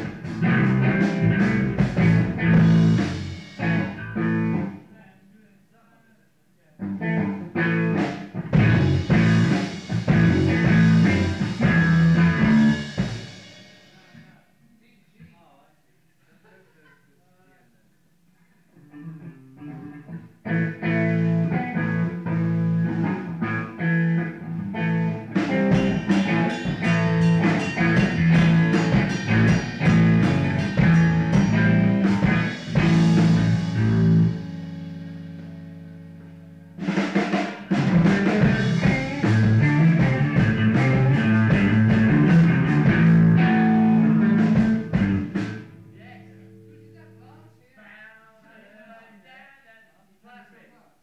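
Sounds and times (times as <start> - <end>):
rock music with drums and guitar: 0.0 - 4.8, 6.8 - 14.2, 18.9 - 46.7.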